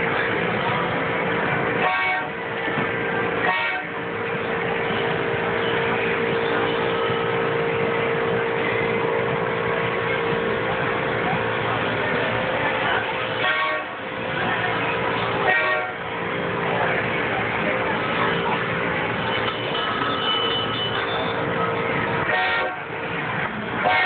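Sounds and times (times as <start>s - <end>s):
constant tone: 0.0s - 24.0s
ride-on train horn toots: 1.8s - 2.4s, 3.4s - 4.0s, 13.4s - 14.0s, 15.4s - 16.0s, 22.2s - 22.9s, 23.8s - 24.0s.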